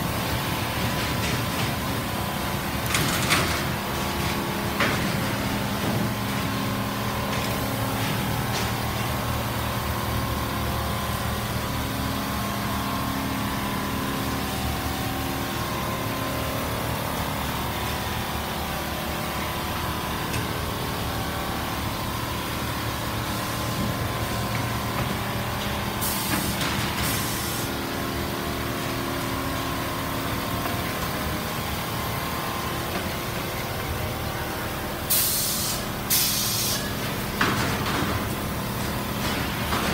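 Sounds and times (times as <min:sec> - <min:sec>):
air hisses: 0:35.1 - 0:36.9.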